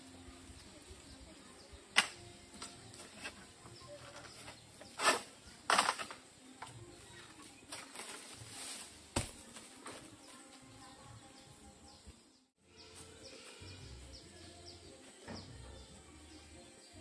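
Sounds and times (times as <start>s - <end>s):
palm leaves rustling: 0.0s - 10.8s
sharp snap of frond: 1.9s - 2.3s.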